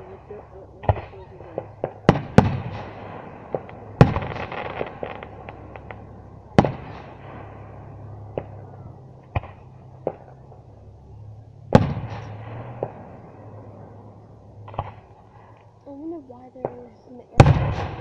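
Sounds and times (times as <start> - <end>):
rolling echo: 0.0 - 18.0
firework shells bursting: 0.8 - 10.5
small crackling pops: 3.5 - 7.0.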